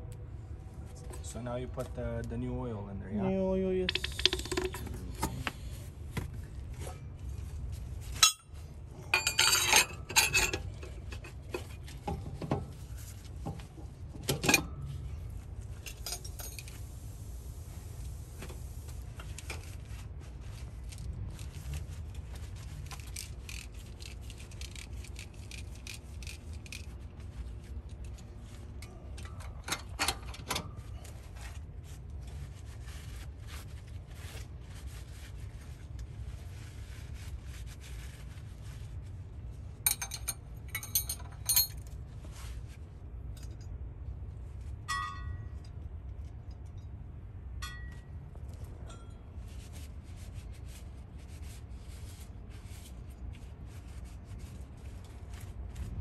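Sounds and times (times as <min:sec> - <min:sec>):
steady low rumble: 0:00.0 - 0:29.6, 0:30.7 - 0:56.0
metal parts clinking: 0:09.1 - 0:10.6, 0:39.9 - 0:41.9
towel wiping greasy metal parts: 0:30.8 - 0:39.2.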